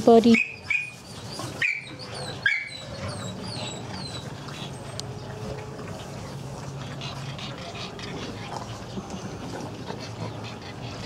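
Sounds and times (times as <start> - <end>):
dog whining and yipping: 0.3 - 5.2.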